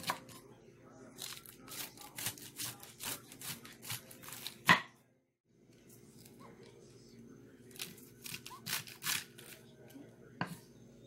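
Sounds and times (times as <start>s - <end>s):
knife slicing cabbage on board: 1.2s - 4.6s.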